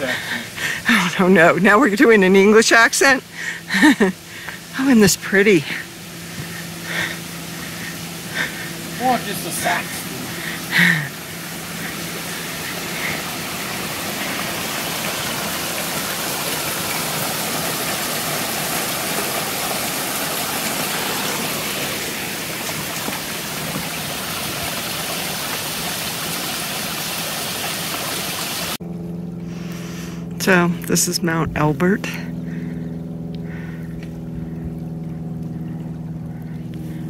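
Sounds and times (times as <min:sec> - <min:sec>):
creek flowing over stones: 0:00.0 - 0:28.8.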